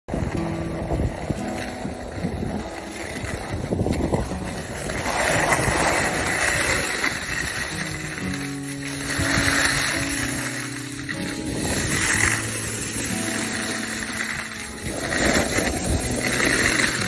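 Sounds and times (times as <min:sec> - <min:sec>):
skis scraping over snow: 0:00.1 - 0:17.0
wind rushing over microphone: 0:00.1 - 0:17.0.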